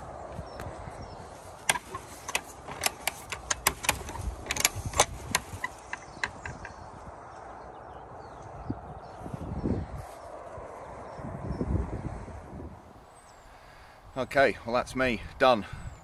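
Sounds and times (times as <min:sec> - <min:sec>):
metal gate latch clinking: 0:01.7 - 0:06.8.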